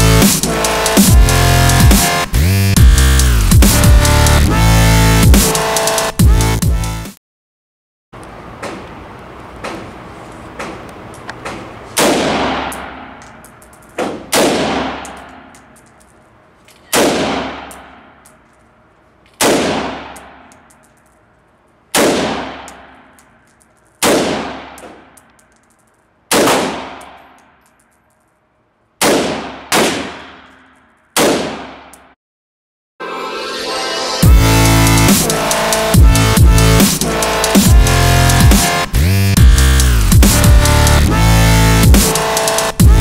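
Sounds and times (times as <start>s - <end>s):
rifle shots echoing indoors: 11.4s - 13.3s, 13.9s - 15.6s, 16.8s - 18.2s, 19.3s - 20.8s, 21.9s - 25.2s, 26.3s - 27.6s, 29.0s - 31.8s.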